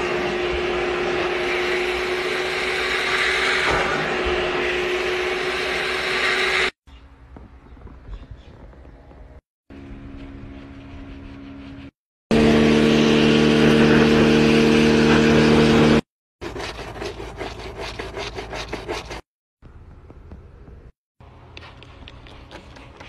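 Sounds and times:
pressure washer motor hum: 0.0 - 6.7, 12.3 - 16.0
bristle brush scrubbing: 10.4 - 12.0, 16.4 - 19.3, 21.6 - 23.0.

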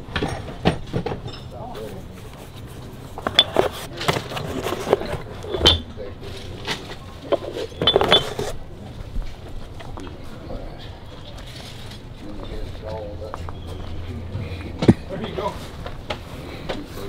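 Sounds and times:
metal tools clinking: 0.2 - 2.0, 3.1 - 8.6.

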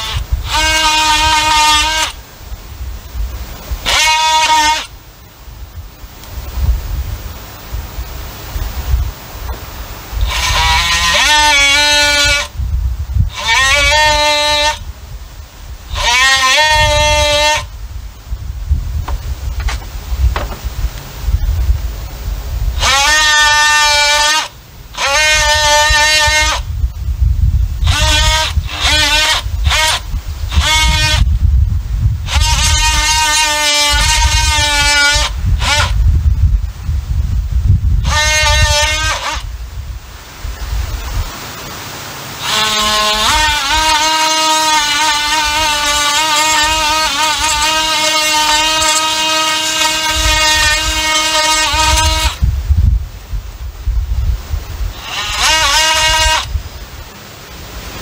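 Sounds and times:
oscillating tool buzzing: 0.0 - 2.3, 3.8 - 5.0, 10.2 - 12.6, 13.2 - 14.9, 15.8 - 17.8, 22.7 - 26.7, 27.8 - 31.4, 32.2 - 36.1, 37.9 - 39.6, 42.4 - 52.4, 54.8 - 56.6
power saw cutting wood: 0.0 - 2.3, 3.8 - 5.0, 10.2 - 12.6, 13.2 - 14.9, 15.8 - 17.7, 19.0 - 21.0, 22.7 - 26.7, 27.8 - 31.3, 32.2 - 36.0, 38.0 - 39.6, 42.4 - 52.4, 54.8 - 56.6
wind rumble on microphone: 0.0 - 41.4, 42.4 - 58.0.

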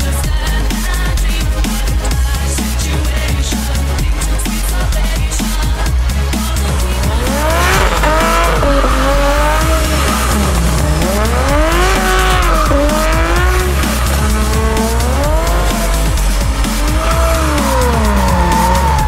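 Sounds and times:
car engine revving: 0.0 - 19.0
tyres spinning and squealing: 6.3 - 19.0.

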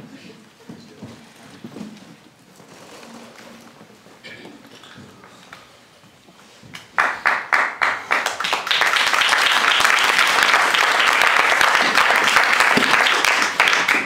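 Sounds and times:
audience applause: 7.0 - 14.0.

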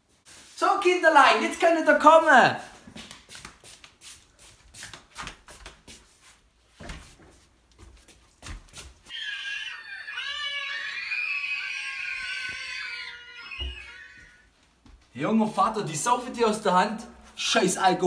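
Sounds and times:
footsteps in a hallway: 2.6 - 9.2, 13.5 - 15.2.

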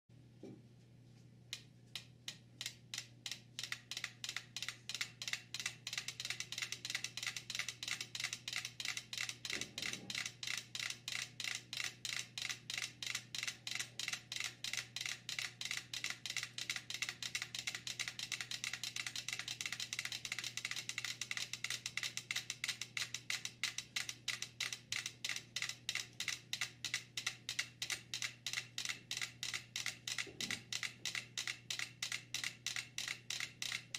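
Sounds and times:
clockwork metronomes ticking: 2.0 - 33.9.

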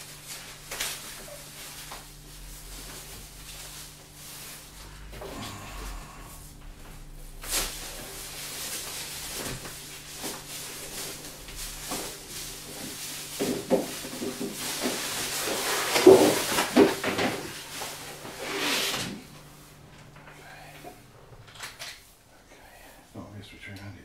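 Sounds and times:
cardboard rustling and scraping: 0.1 - 5.2, 6.7 - 19.8.

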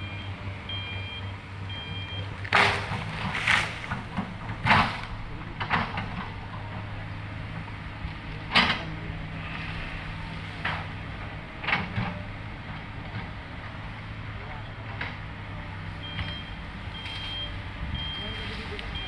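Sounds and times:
excavator diesel engine running: 0.0 - 19.0
branches knocking and cracking: 2.3 - 6.0.

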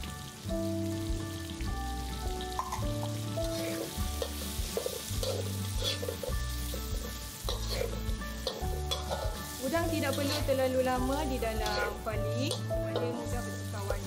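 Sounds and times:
background music: 0.0 - 14.0
food sizzling in a wok: 0.0 - 14.0
metal spatula scraping a wok: 3.4 - 13.3.

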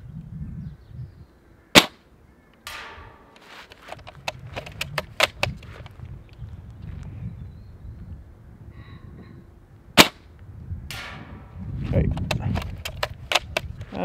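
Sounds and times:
low wind rumble: 0.0 - 14.0
airsoft rifle shot crack: 1.8 - 2.0, 10.0 - 10.2
bolt clicks: 3.7 - 5.6, 12.2 - 13.8
bolt scraping: 12.2 - 13.7.

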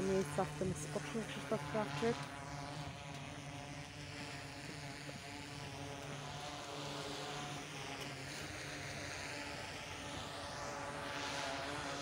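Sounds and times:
drone propeller buzz: 0.0 - 12.0.

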